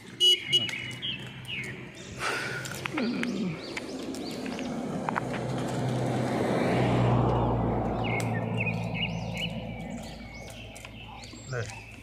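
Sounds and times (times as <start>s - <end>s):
bird chirps: 0.2s - 2.2s, 8.0s - 12.0s
vehicle passing by: 0.8s - 12.0s.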